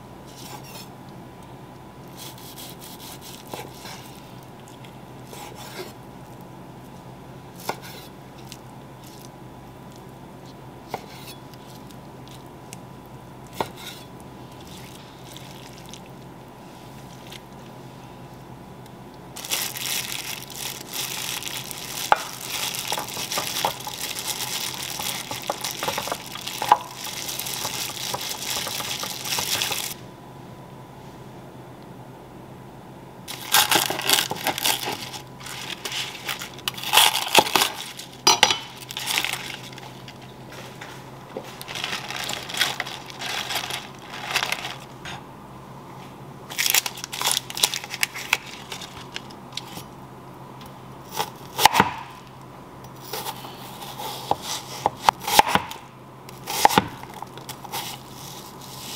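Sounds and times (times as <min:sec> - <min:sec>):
plastic glove crinkling: 0:14.5 - 0:16.1, 0:19.4 - 0:30.0, 0:33.3 - 0:45.1, 0:46.5 - 0:49.8
wet squishing of mixing meat: 0:14.6 - 0:16.1.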